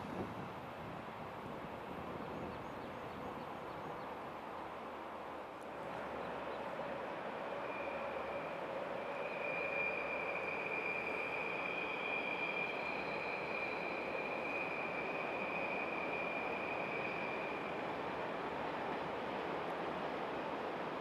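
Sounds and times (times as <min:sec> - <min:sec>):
distant freight train rumbling: 0:00.0 - 0:21.0
high train whine: 0:00.0 - 0:21.0.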